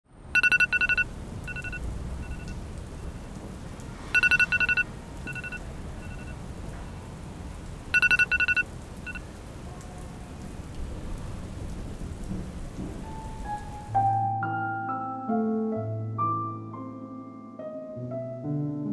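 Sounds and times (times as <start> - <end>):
electronic alarm beeping: 0.4 - 2.5, 4.2 - 6.4, 7.9 - 9.2
soft piano music: 12.3 - 18.9.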